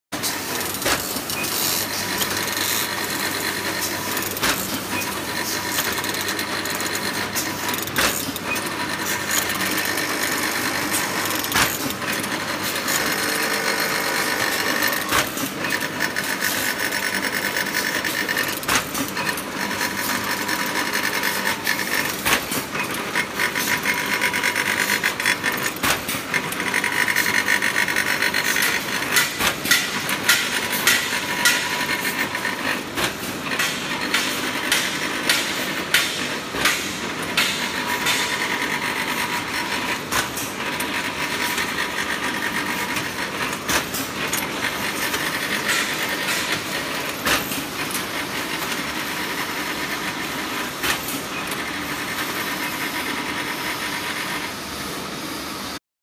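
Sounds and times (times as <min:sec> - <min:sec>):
machine mechanical clatter: 0:00.2 - 0:54.5.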